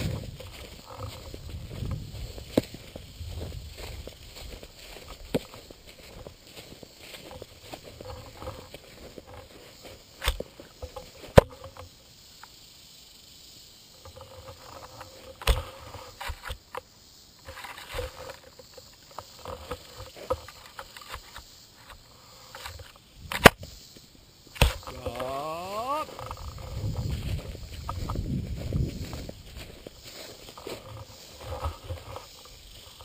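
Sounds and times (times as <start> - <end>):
rustling through dry grass: 0.0 - 11.9, 24.6 - 33.0.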